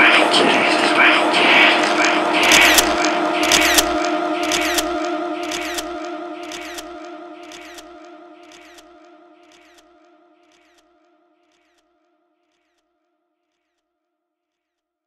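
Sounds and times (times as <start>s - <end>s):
humming drone: 0.0s - 9.8s
sharp click: 2.0s - 6.9s, 7.5s - 7.9s, 8.5s - 8.9s, 9.5s - 9.8s.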